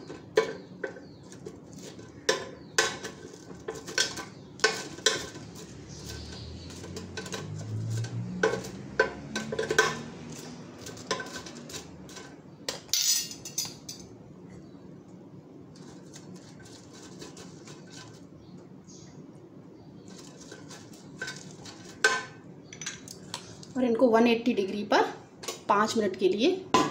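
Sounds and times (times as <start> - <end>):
metal spoon scraping mesh basket: 0.0 - 14.0, 15.8 - 18.3, 20.1 - 22.2.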